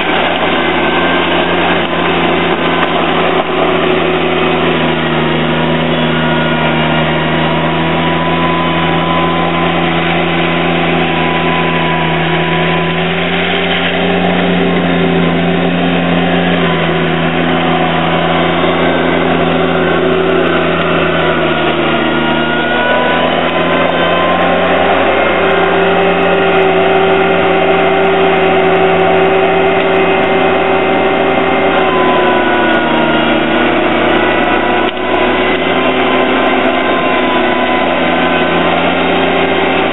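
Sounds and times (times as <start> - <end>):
blade pushing gravel: 0.0 - 39.9
garden tractor engine running: 0.0 - 39.9.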